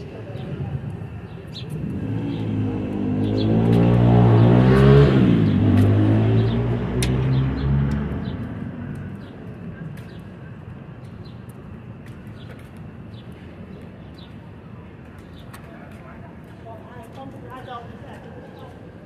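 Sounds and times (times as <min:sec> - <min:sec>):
street background noise: 0:00.0 - 0:19.0
vehicle engine passing: 0:01.6 - 0:09.3.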